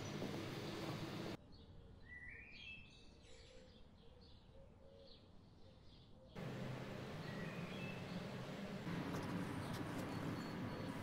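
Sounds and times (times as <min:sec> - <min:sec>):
faint bird chirping: 0:00.0 - 0:11.0
loud steady hum: 0:06.4 - 0:11.0.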